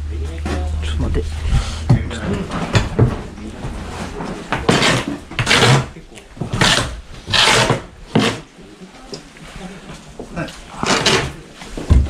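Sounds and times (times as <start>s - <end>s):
hand tool scraping wood: 1.4s - 8.5s, 10.7s - 11.9s.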